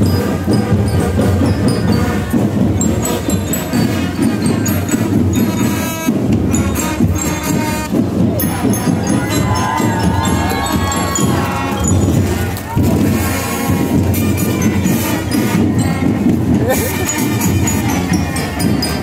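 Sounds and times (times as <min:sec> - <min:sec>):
drums: 0:00.0 - 0:19.0
marching band playing: 0:00.0 - 0:19.0
bell lyre high notes: 0:08.2 - 0:12.6.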